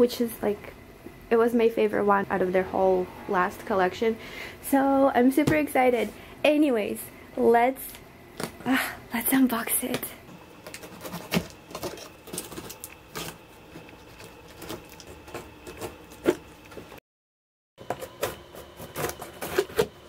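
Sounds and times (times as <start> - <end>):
blade slitting packing tape: 18.8 - 20.0.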